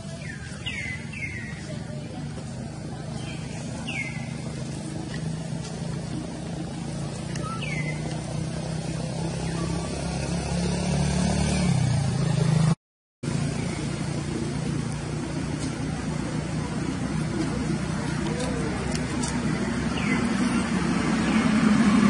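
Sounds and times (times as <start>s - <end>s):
vehicle engine running: 0.0s - 22.0s.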